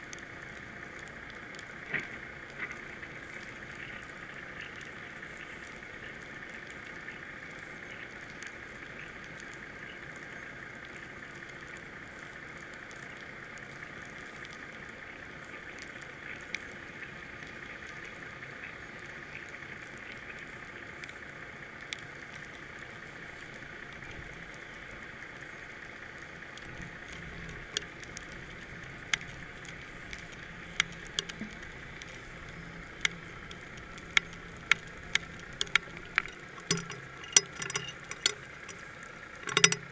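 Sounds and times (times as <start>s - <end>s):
muffled underwater hiss: 0.0s - 39.6s
sharp clicks and ticks: 26.5s - 39.9s.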